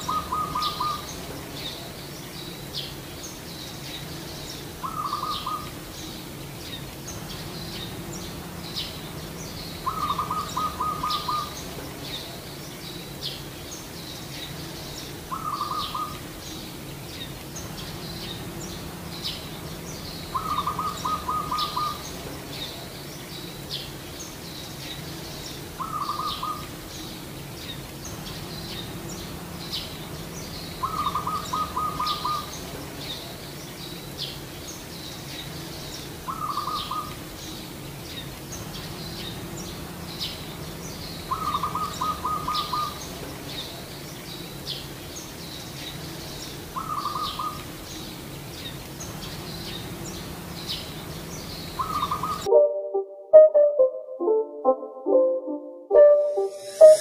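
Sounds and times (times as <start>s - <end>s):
dove trilled cooing: 0.0s - 1.1s, 9.8s - 11.6s, 20.3s - 22.1s, 30.8s - 32.5s, 41.3s - 43.0s, 51.8s - 52.5s
small birds chirping: 0.0s - 52.5s.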